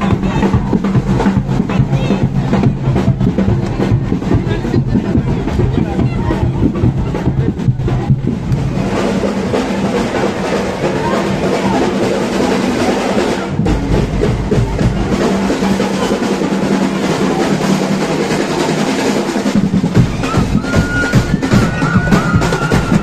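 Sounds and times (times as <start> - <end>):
percussion band drumming: 0.0 - 23.0.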